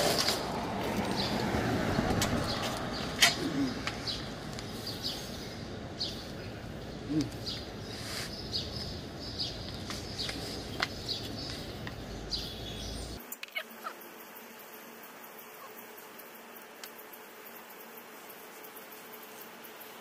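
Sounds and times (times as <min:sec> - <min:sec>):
bird chirping: 0:01.1 - 0:16.2.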